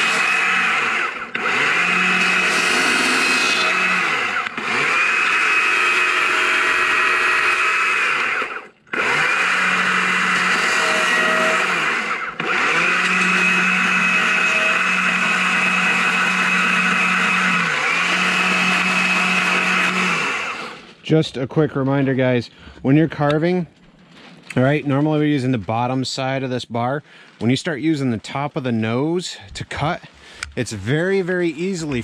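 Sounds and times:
chainsaw cutting log: 0:00.0 - 0:21.0.

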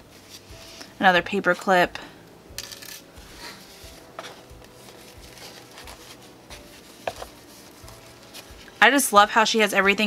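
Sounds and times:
paper rustling: 0:03.2 - 0:08.8.

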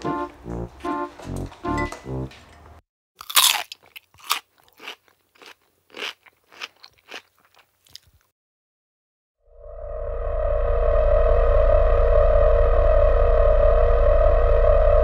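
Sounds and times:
cucumber crunching: 0:03.2 - 0:08.3.

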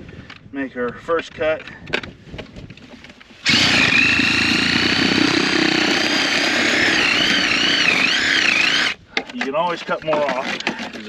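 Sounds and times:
power saw cutting plastic: 0:03.4 - 0:09.0.

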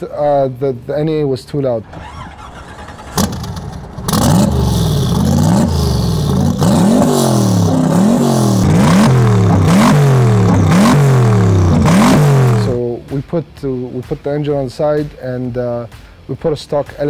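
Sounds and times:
car engine revving: 0:01.8 - 0:12.9.

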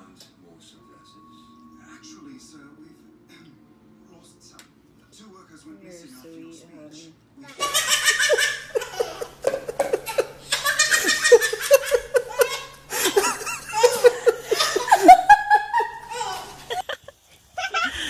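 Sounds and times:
baby belly-laughing: 0:07.6 - 0:16.9.

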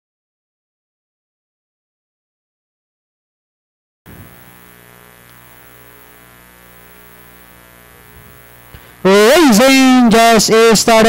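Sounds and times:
electrical mains hum: 0:04.1 - 0:11.0.

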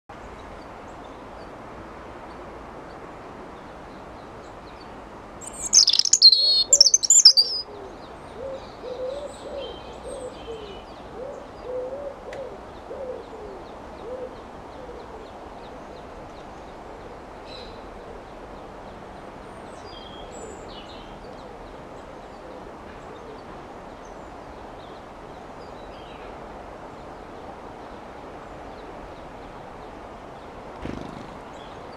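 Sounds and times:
faint high chirps: 0:05.4 - 0:07.6
robin warbling song: 0:05.4 - 0:07.6
low repeated cooing: 0:06.3 - 0:15.3.

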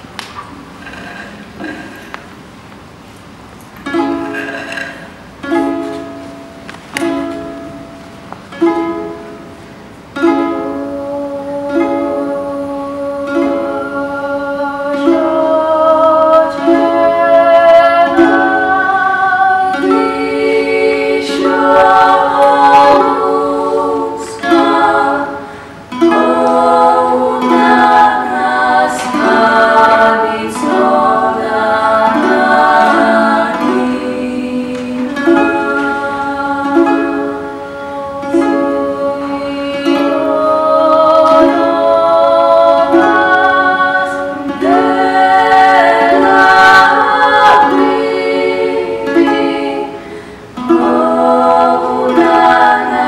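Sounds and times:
strummed lute: 0:03.7 - 0:53.0
women singing in harmony: 0:08.5 - 0:53.0.

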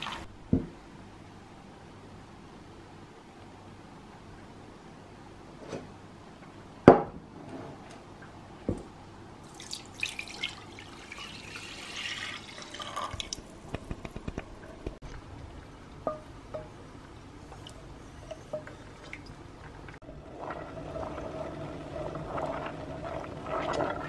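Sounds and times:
juice pouring into saucepan: 0:09.4 - 0:13.6, 0:20.1 - 0:24.0.

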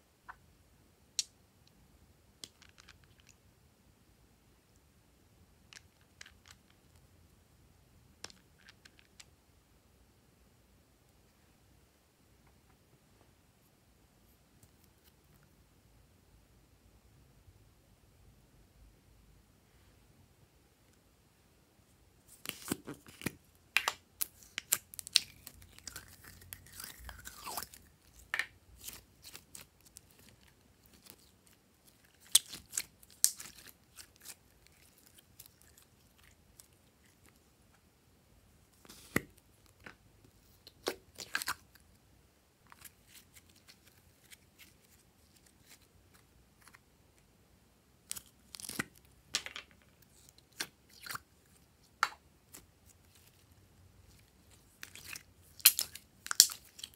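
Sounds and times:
slime squelching and popping: 0:22.4 - 0:37.4, 0:54.8 - 0:56.9.

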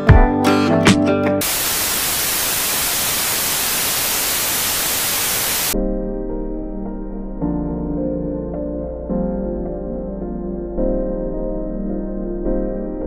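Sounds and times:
tv static hiss: 0:01.4 - 0:05.8
soft ambient music: 0:05.8 - 0:13.0.

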